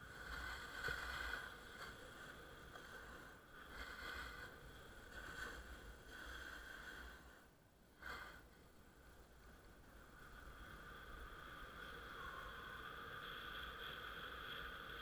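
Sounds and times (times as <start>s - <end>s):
snowboard sliding over snow: 0.0s - 15.0s.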